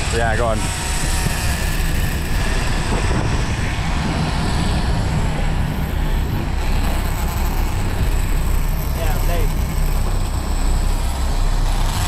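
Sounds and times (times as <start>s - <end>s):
boat engines running: 0.0s - 12.0s
wind rushing: 2.0s - 7.1s.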